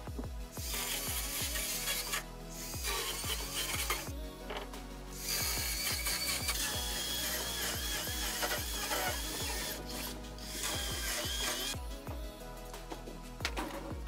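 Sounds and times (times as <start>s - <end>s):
chainsaw cutting wood: 0.6s - 4.6s, 5.2s - 11.8s.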